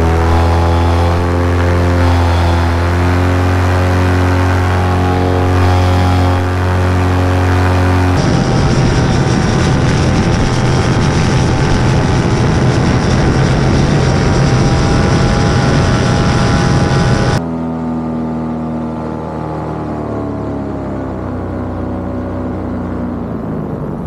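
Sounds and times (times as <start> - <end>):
heavy wind noise: 0.0 - 17.4, 22.6 - 24.0
small aircraft engine and propeller: 0.0 - 24.0
smooth drone of steady tones: 0.0 - 24.0.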